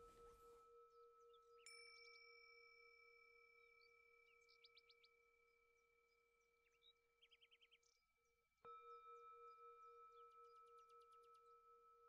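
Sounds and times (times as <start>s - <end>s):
higher bell-like tone: 0.0s - 3.4s
singing bowl ringing: 0.0s - 4.8s, 8.7s - 12.0s.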